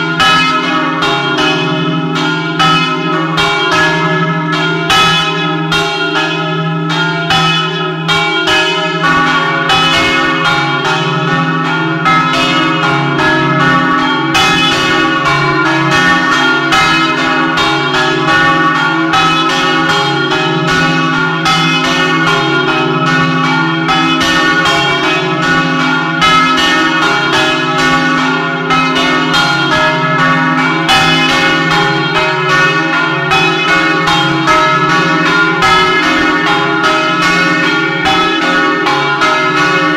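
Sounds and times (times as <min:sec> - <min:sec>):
church bells pealing: 0:00.0 - 0:39.9.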